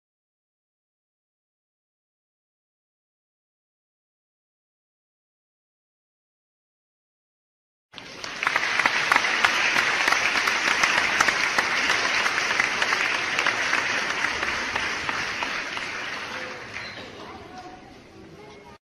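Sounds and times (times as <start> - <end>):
crowd applause: 8.0 - 17.6.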